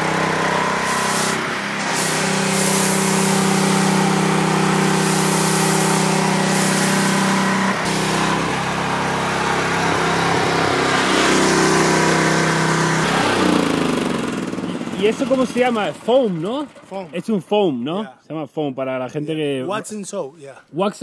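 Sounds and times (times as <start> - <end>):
pressure washer engine running: 0.0 - 17.6
hiss of water spray: 0.8 - 8.2.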